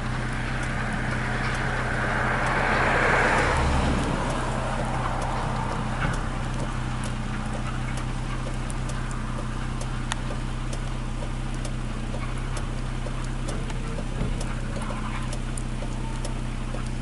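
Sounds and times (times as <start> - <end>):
steady low rumble: 0.0 - 17.0
steam locomotive exhaust beats: 0.0 - 17.0.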